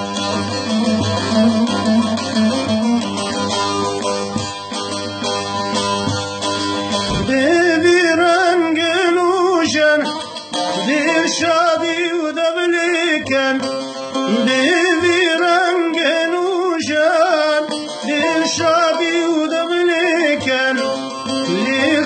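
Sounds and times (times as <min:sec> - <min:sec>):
plucked lute: 0:00.0 - 0:22.0
man singing: 0:07.1 - 0:22.0.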